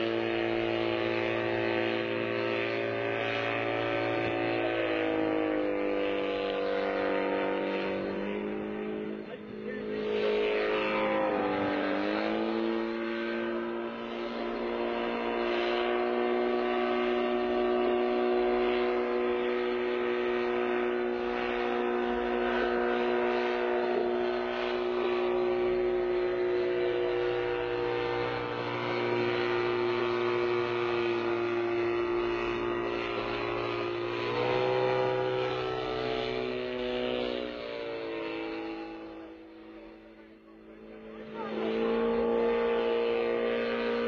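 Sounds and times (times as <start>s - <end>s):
gyrocopter engine droning: 0.0s - 44.0s.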